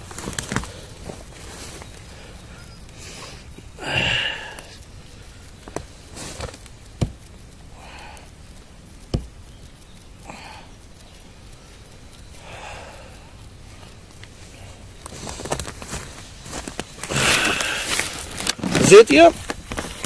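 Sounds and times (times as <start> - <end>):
heavy breaths of effort: 0.6 - 5.6, 7.7 - 8.4, 10.2 - 10.8, 11.8 - 15.4, 17.0 - 18.5.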